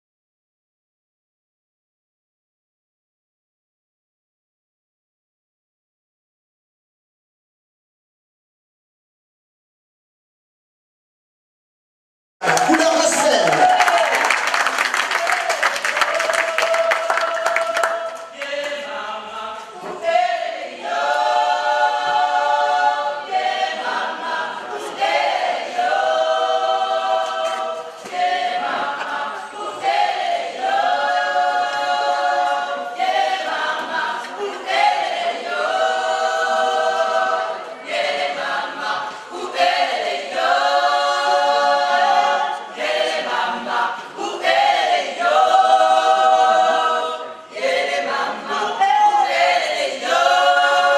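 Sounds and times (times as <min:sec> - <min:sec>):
applause: 0:12.4 - 0:18.6
gospel choir singing: 0:12.5 - 0:50.9.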